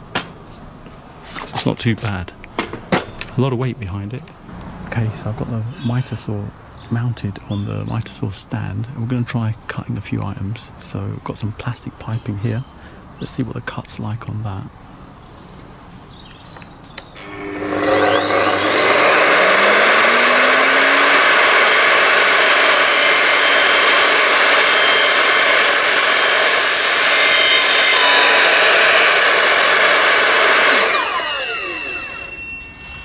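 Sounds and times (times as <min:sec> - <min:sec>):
saw blade cutting plastic pipe: 0:17.2 - 0:32.9
mitre saw motor whining: 0:17.2 - 0:33.0.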